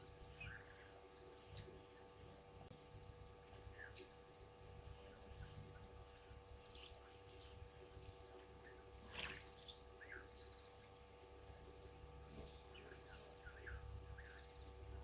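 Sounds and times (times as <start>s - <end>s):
insects trilling: 0.0s - 15.0s
bird chirps: 0.2s - 2.1s, 3.3s - 4.3s, 6.7s - 10.8s, 12.5s - 15.0s.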